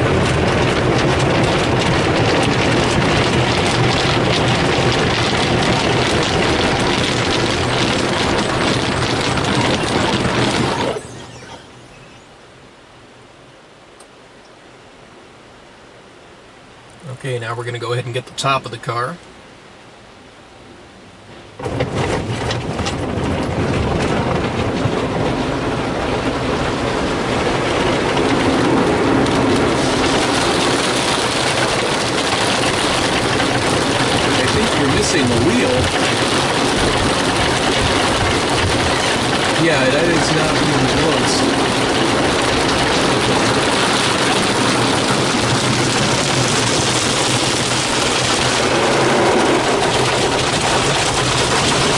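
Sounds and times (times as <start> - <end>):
water running over glass: 29.7 - 48.7.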